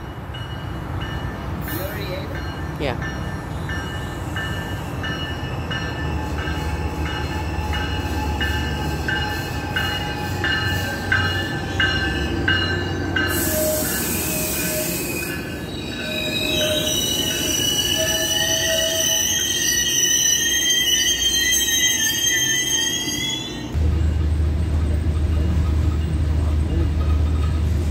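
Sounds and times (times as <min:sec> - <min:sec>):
train bell ringing: 0:00.0 - 0:27.7
wheel and brake squeal: 0:13.3 - 0:23.8
train rumble: 0:23.7 - 0:27.9.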